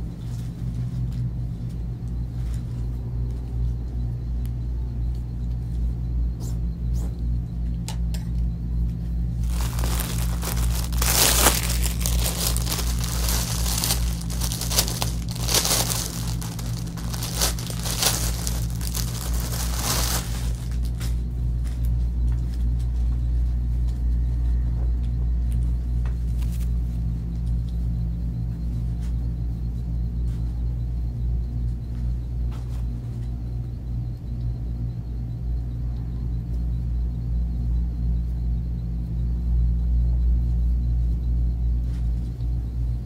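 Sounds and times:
plastic wrapping crinkling: 9.4 - 21.0
steady low drone: 9.4 - 21.4.

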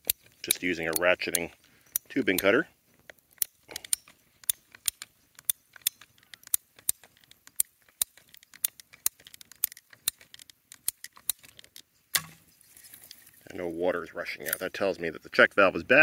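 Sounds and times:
pipe cutter ratchet clicking: 0.0 - 2.5, 3.4 - 11.6.

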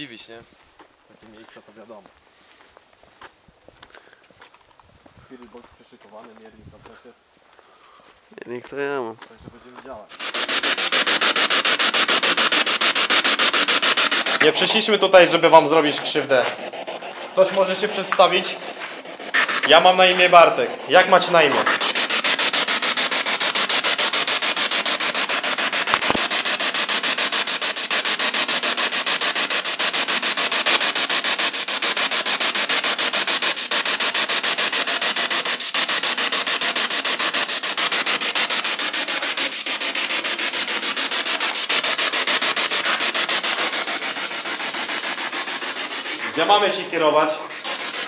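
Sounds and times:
pulsing radio static: 10.1 - 28.2.

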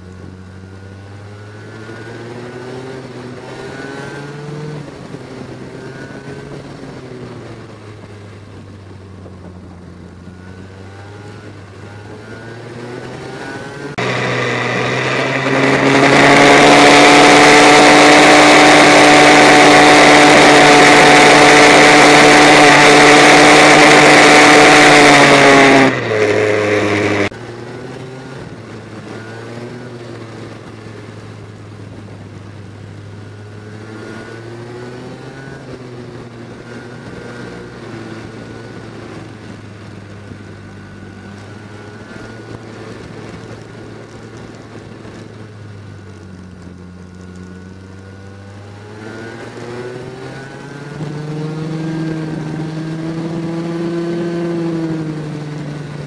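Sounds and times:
loud high-revving kart engine: 0.0 - 56.0
go-kart engine revving: 10.1 - 56.0.

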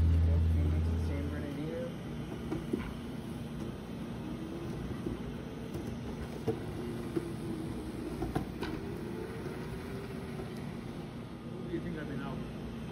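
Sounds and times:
wheels rolling on concrete: 2.3 - 11.2
electric motor whine: 2.5 - 11.9.

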